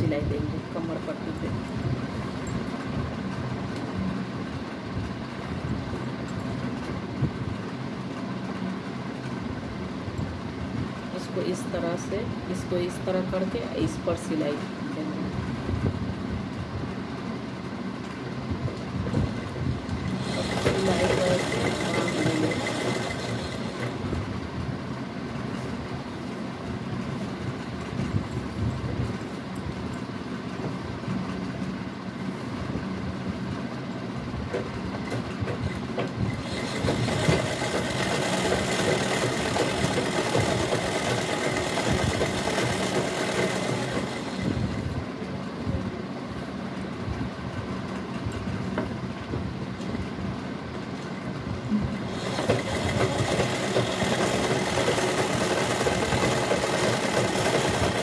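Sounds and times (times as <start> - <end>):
sewing machine clattering: 20.0 - 24.1, 35.0 - 44.6, 52.0 - 58.0.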